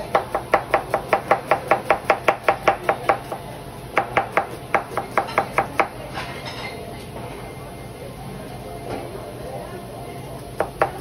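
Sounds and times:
knife chopping on cutting board: 0:00.0 - 0:05.9.

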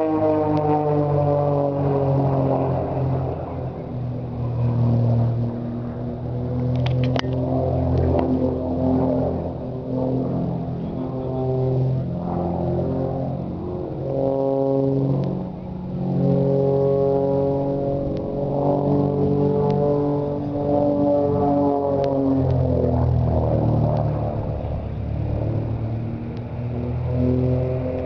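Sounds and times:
plane engine droning overhead: 0:00.0 - 0:28.0
sharp clicks: 0:06.7 - 0:08.3.

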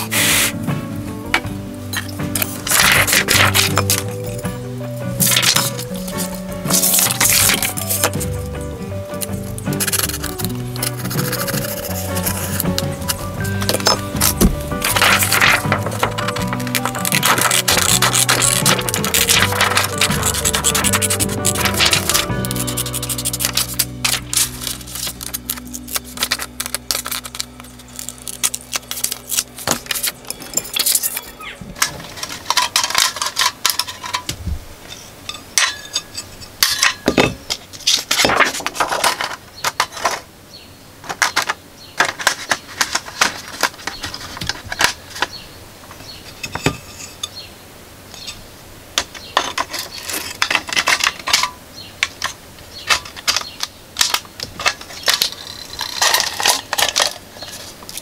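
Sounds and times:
plastic sheet rustling and crackling: 0:02.4 - 0:04.2, 0:05.2 - 0:08.2, 0:13.6 - 0:34.5, 0:37.6 - 0:40.3, 0:41.0 - 0:45.4, 0:52.2 - 0:58.0
scissors snipping: 0:16.0 - 0:31.3.

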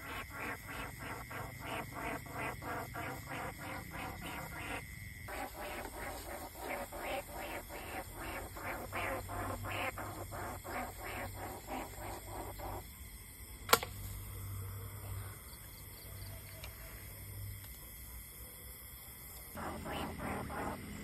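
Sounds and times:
rhythmic rasping calls: 0:00.0 - 0:12.8, 0:19.6 - 0:21.0
sharp click: 0:13.7 - 0:14.0.

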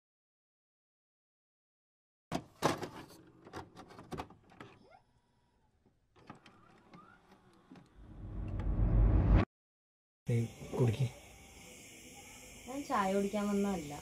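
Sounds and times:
low rumble: 0:08.0 - 0:09.4.

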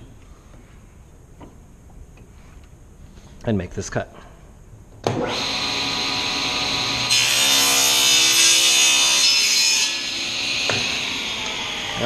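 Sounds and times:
table saw motor whine: 0:05.1 - 0:12.0.

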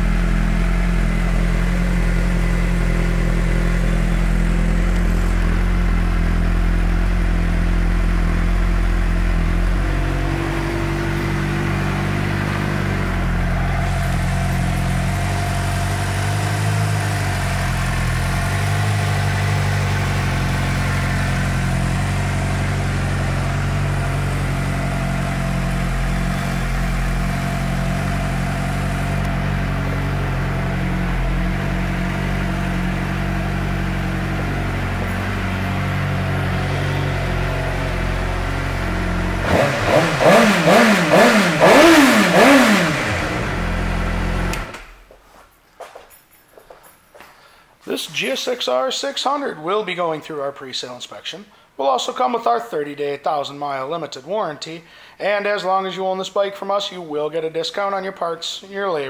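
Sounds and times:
motorcycle engine idling: 0:00.0 - 0:44.8
engine revving: 0:00.0 - 0:44.9.

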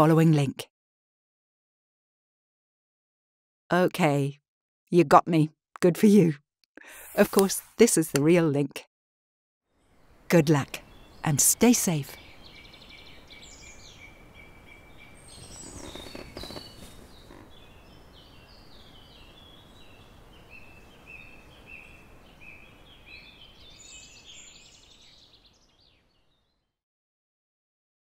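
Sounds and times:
background hiss: 0:10.0 - 0:25.3
small birds chirping: 0:10.5 - 0:26.6.

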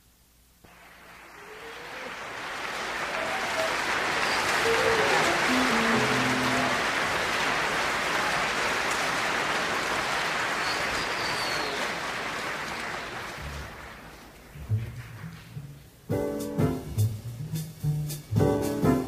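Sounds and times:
audience applauding: 0:00.6 - 0:15.8.

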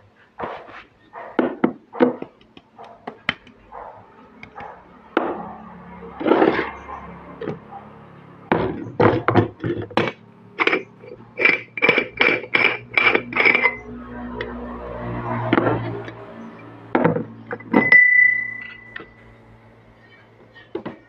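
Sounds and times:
metal pot parts knocking: 0:06.2 - 0:07.6, 0:08.5 - 0:13.9, 0:16.9 - 0:19.2
ringing metallic taps: 0:15.5 - 0:19.4.

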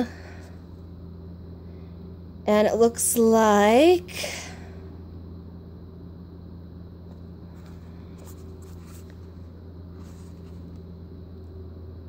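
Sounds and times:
low background hum: 0:00.0 - 0:12.0
soft scrapes: 0:07.5 - 0:10.8.

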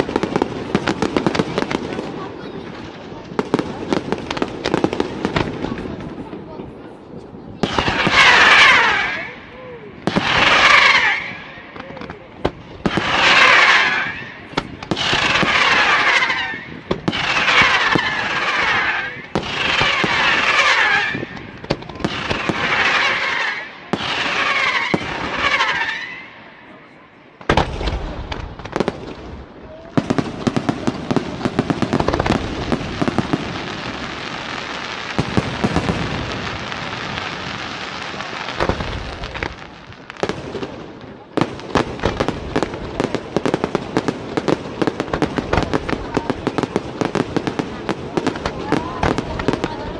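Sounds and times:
fireworks crackling and popping: 0:00.0 - 0:49.9
firework salvos with falling whistles: 0:07.6 - 0:27.0.

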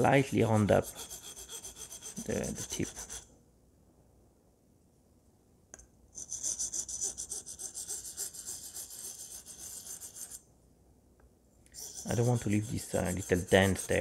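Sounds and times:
blade scraping on sharpening plate: 0:11.8 - 0:14.0.

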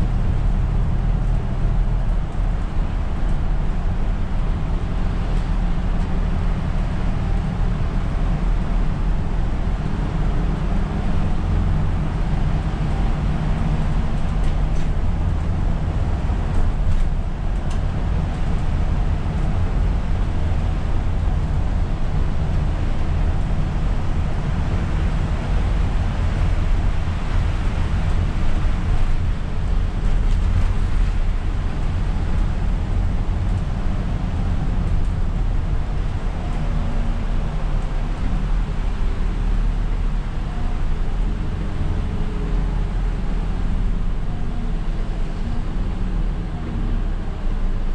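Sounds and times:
diesel engine rumble: 0:00.0 - 0:47.9.

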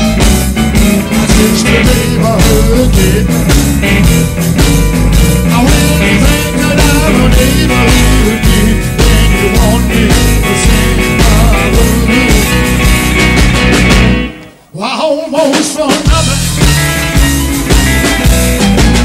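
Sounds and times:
electric guitar sliding notes: 0:00.0 - 0:14.7
live blues-rock band playing: 0:00.0 - 0:19.0.

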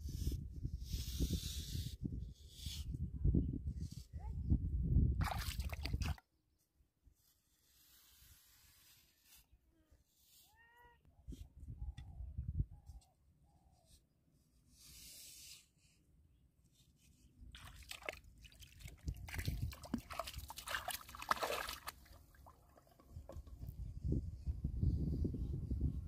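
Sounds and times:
river water splashing: 0:17.6 - 0:23.0.

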